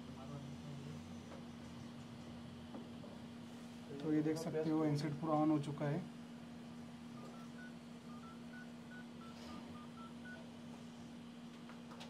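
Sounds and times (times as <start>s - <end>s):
steady low hum: 0.0s - 12.0s
phone keypad beeps: 7.2s - 10.4s.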